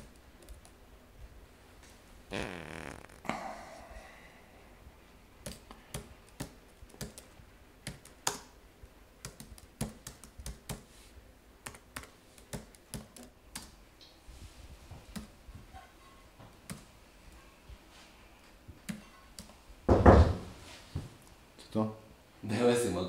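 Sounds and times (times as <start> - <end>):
laptop keyboard typing: 5.4 - 8.5, 9.2 - 10.9, 11.6 - 13.8, 15.1 - 15.4, 16.6 - 16.9.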